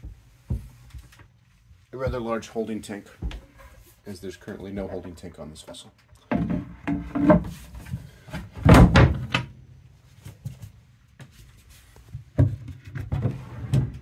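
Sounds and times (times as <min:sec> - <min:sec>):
wooden hatch panels thudding: 0:08.4 - 0:09.5.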